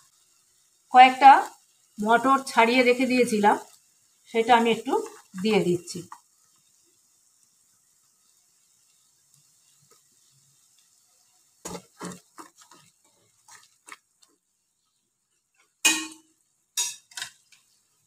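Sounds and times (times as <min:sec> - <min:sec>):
wooden spatula scraping frying pan: 0:11.6 - 0:14.4.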